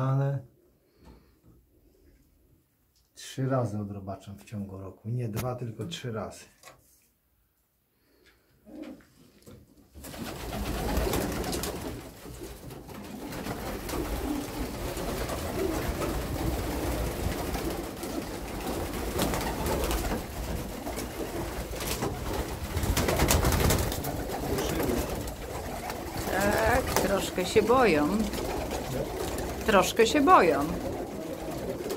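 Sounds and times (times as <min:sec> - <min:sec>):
pigeons cooing: 0:08.7 - 0:09.0, 0:12.9 - 0:31.9.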